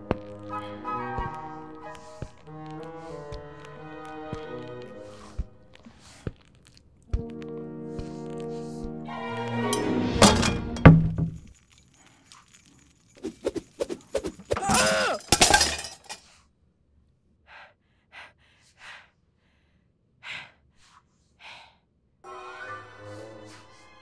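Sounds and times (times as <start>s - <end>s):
metallic clattering crash: 9.8s - 11.5s, 14.7s - 16.2s.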